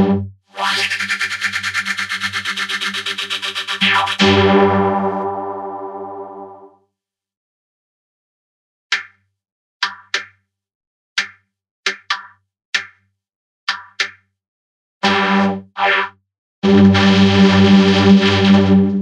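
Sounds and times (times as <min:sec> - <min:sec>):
longer pitched sounds: 0:00.0 - 0:06.6.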